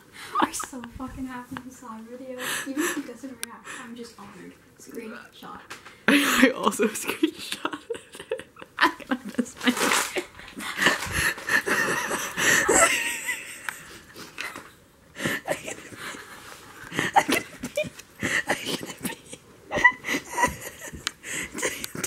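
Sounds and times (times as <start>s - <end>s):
women laughing: 6.1s - 22.0s.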